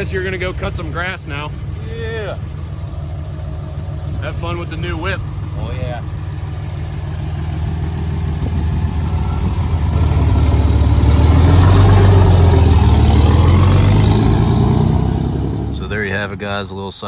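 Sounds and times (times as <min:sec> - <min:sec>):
truck engine accelerating: 0:00.0 - 0:17.0.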